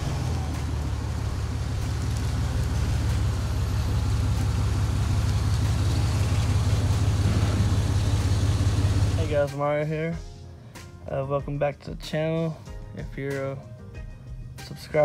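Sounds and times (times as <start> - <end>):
pickup truck engine running: 0.0 - 9.5.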